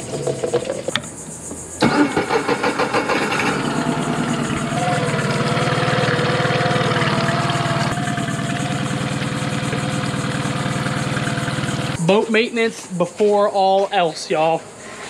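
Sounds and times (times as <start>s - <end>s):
outboard motor idling: 1.8s - 12.0s.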